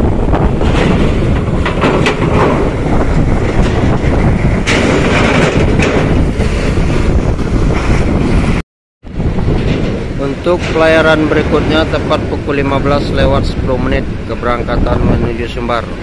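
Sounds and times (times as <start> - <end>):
wind buffeting microphone: 0.0 - 16.0
rattles: 0.4 - 6.8, 9.4 - 13.5.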